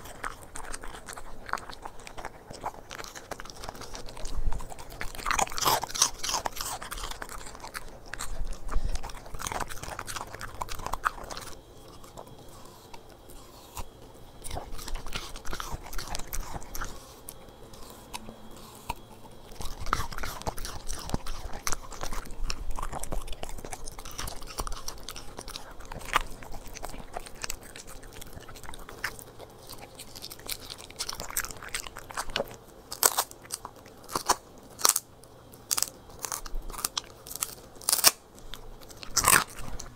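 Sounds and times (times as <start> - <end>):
dog chewing and crunching food: 0.0 - 39.9
dog gnawing a bone: 0.0 - 39.9.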